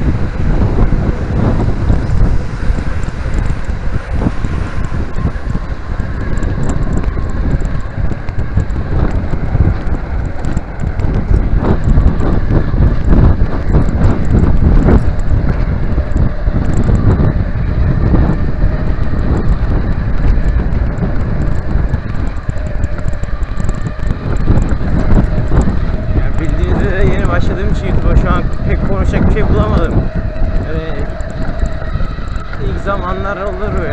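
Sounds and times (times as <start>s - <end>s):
low rumble of bike riding: 0.0s - 33.9s
wind buffeting microphone: 0.0s - 33.9s.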